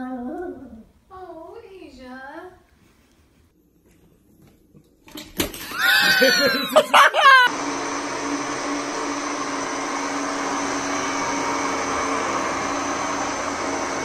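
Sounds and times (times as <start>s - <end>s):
blender motor running: 5.6s - 14.0s.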